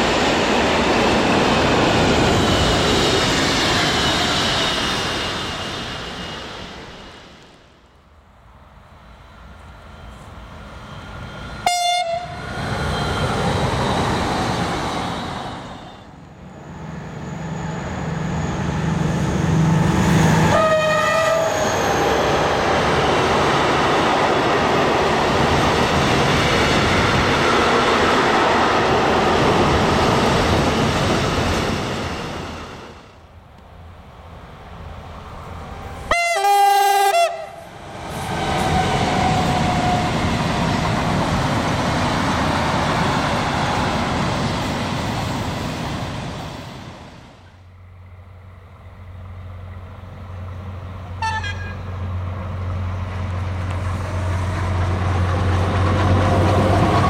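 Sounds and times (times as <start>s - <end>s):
locomotive horn blasts: 11.6s - 12.4s, 20.5s - 21.6s, 36.1s - 37.6s, 51.2s - 51.9s
train wheels rolling: 52.1s - 57.0s.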